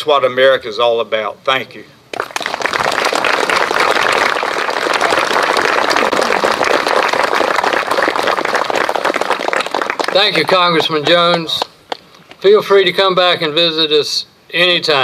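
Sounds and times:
crowd applauding: 2.1s - 12.4s.

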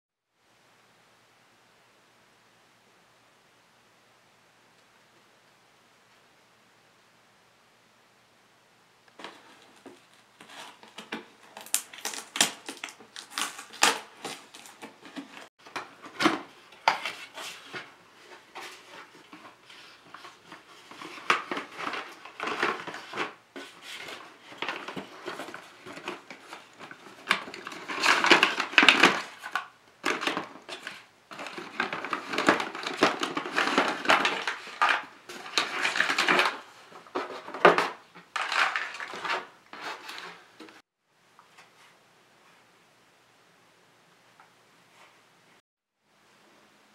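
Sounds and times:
cardboard scraping and rustling: 9.2s - 40.8s
plastic parts clattering: 9.2s - 40.8s.

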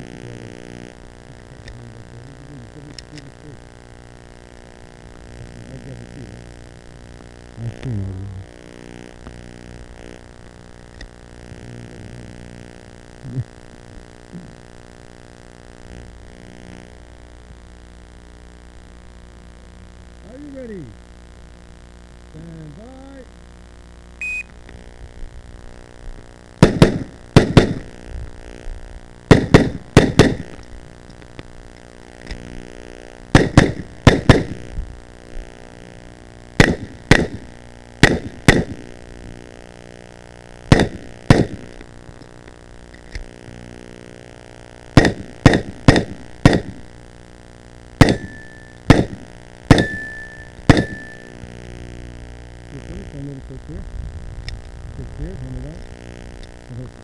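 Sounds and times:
pistol shots: 26.6s - 27.9s, 29.3s - 30.5s, 33.4s - 34.6s, 36.6s - 37.4s, 38.0s - 38.8s, 40.7s - 41.7s, 45.0s - 46.8s, 48.0s - 51.2s
brief steady ring: 48.2s - 48.8s, 49.7s - 51.4s.

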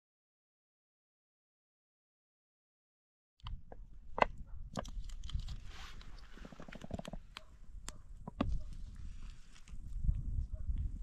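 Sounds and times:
wind rumbling on microphone: 3.4s - 11.0s.

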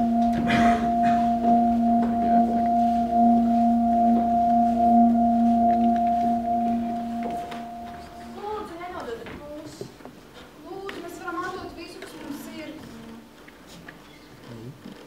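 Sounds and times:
ringing drone: 0.0s - 9.0s.

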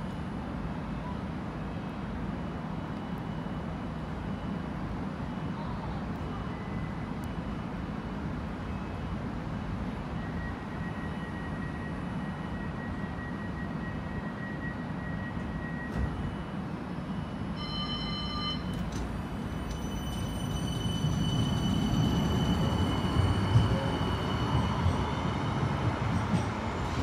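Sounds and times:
tram equipment humming: 0.0s - 27.0s
tram motor whine: 6.4s - 27.0s
short electronic beep: 17.2s - 18.9s.

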